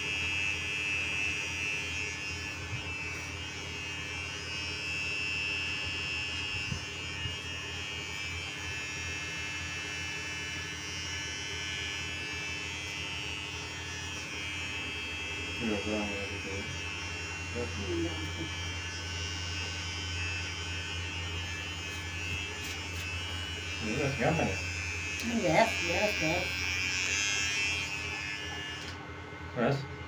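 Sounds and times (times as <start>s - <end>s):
electric hair trimmer buzzing: 0.0s - 29.7s.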